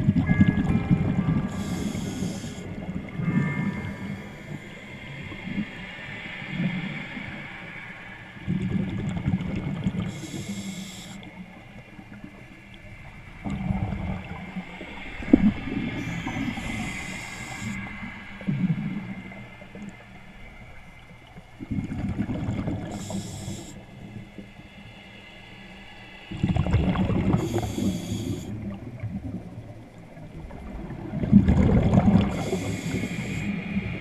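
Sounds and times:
hissing regulator inhalations: 1.5s - 2.8s, 10.1s - 11.4s, 16.0s - 18.1s, 22.8s - 23.8s, 27.4s - 28.6s, 32.2s - 33.6s
rumbling exhaled bubbles: 13.4s - 17.0s, 21.6s - 23.0s, 26.3s - 27.9s, 28.5s - 32.6s.

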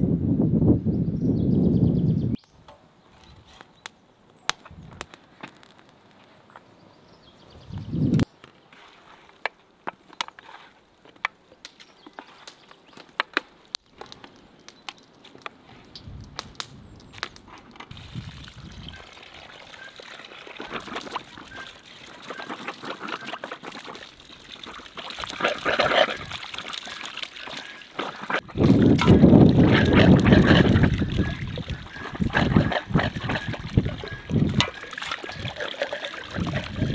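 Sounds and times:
water pouring into plastic basin: 17.9s - 36.9s
water splashing over colander: 17.9s - 36.9s.

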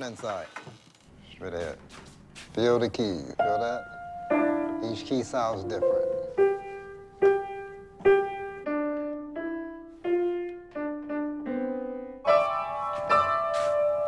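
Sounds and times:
upright piano notes and chords: 3.2s - 14.0s.

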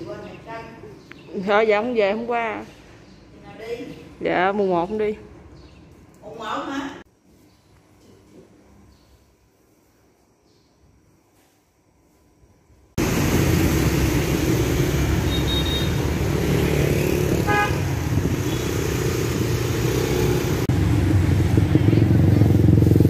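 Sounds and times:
motorbikes and cars running: 13.0s - 23.0s
car horn toot: 15.2s - 16.1s, 17.3s - 18.8s.

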